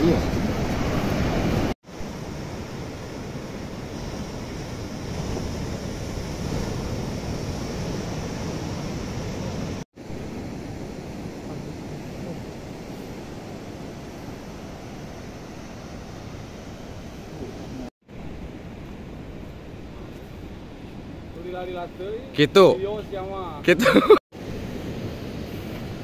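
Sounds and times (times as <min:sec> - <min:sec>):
ocean surf breaking: 0:00.0 - 0:26.0.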